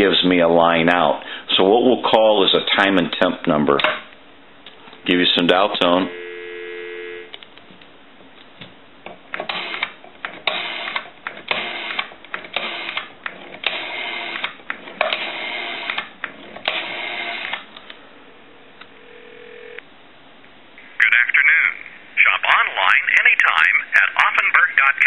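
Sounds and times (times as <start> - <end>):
faint steady tone: 6.0 - 7.4, 18.2 - 19.8
rotary telephone dial whirring and clicking: 9.4 - 17.6.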